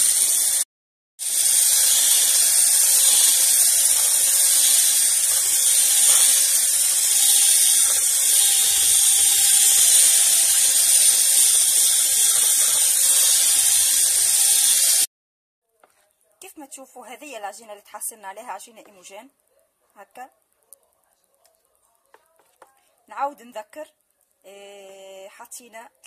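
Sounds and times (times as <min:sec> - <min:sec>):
electric hand mixer whining: 0:00.0 - 0:15.1.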